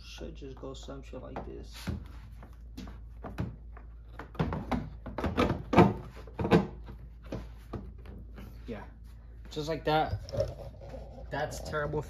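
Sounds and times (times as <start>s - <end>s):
knocks and clunks: 2.8s - 8.2s
plastic knocking and scraping on car body: 2.9s - 8.2s.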